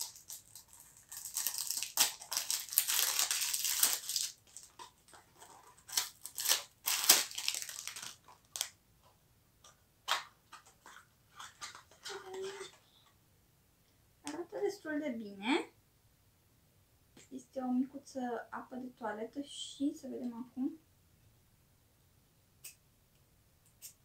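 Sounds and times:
cardboard wrapping crinkling and tearing: 0:00.0 - 0:08.7.

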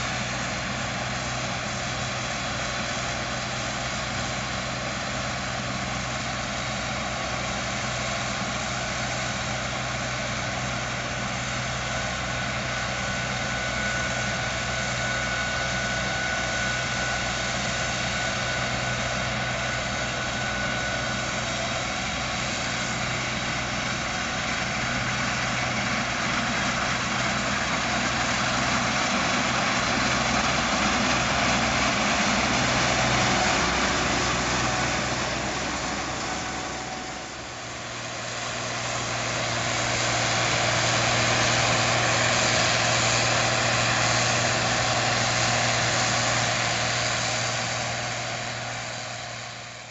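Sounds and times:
combine harvester droning: 0:00.0 - 0:49.9.

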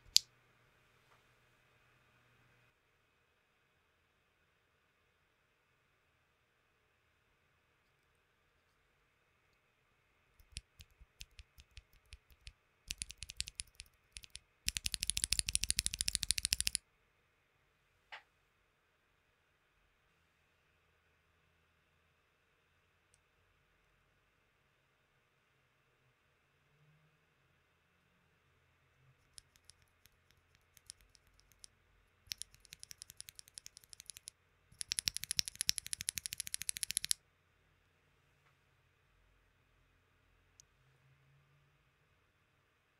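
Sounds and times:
mechanical keyboard switch clicking: 0:10.4 - 0:16.8, 0:32.3 - 0:37.2.

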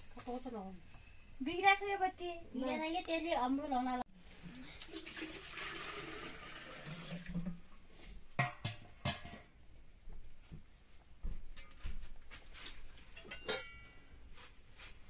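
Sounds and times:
water pouring: 0:04.5 - 0:07.6
steel bowls clanking: 0:13.2 - 0:13.9.

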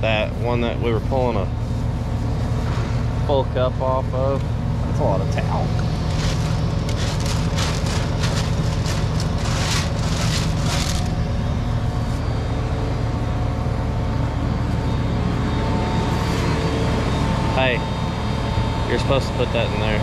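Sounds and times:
tractor engine humming: 0:00.0 - 0:20.0
rustling scraping hisses: 0:06.0 - 0:11.1.

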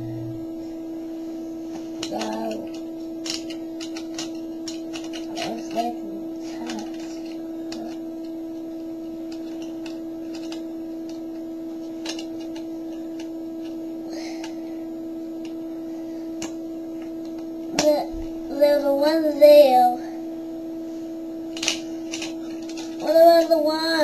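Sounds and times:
steady hum: 0:00.0 - 0:24.0
plastic parts clicking: 0:02.0 - 0:05.9, 0:06.5 - 0:08.0, 0:09.3 - 0:11.2, 0:12.0 - 0:13.8, 0:21.5 - 0:23.5.

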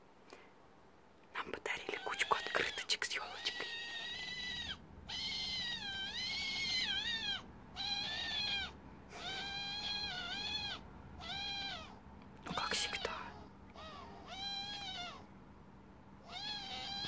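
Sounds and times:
owl whining calls: 0:03.4 - 0:12.0, 0:13.7 - 0:15.3, 0:16.2 - 0:17.0.

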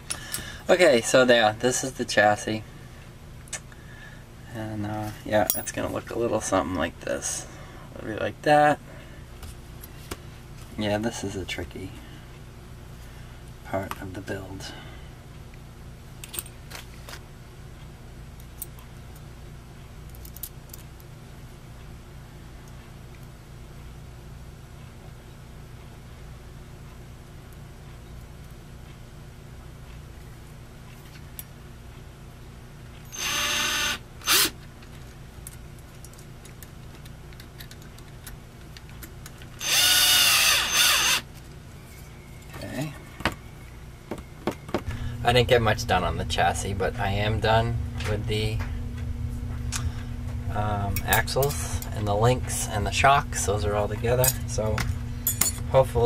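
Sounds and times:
steady low hum: 0:00.0 - 0:56.0
cordless drill driving screws: 0:33.1 - 0:34.5, 0:39.6 - 0:41.2.

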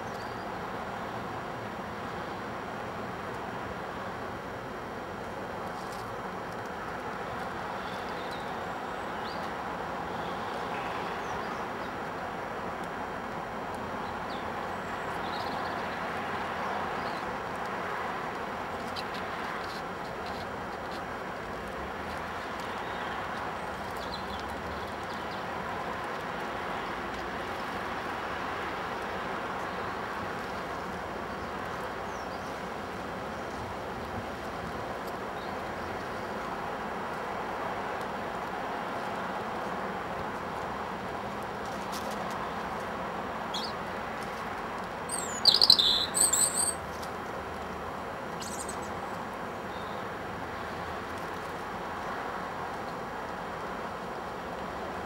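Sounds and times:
songbird singing: 0:00.0 - 0:00.6, 0:07.7 - 0:12.0, 0:13.9 - 0:17.3, 0:22.4 - 0:25.5, 0:43.5 - 0:43.9, 0:45.1 - 0:46.8, 0:48.4 - 0:50.8
outdoor background hiss: 0:00.0 - 0:55.0
steady background noise: 0:00.0 - 0:55.0
light ticks: 0:05.8 - 0:07.5
faint high chirps: 0:45.1 - 0:46.8, 0:48.4 - 0:48.9.

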